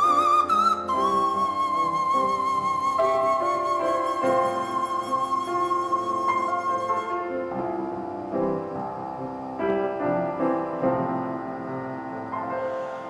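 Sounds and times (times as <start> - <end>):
bicycle pump played as flute: 0.0 - 7.9
piano chords and melody: 0.0 - 13.0.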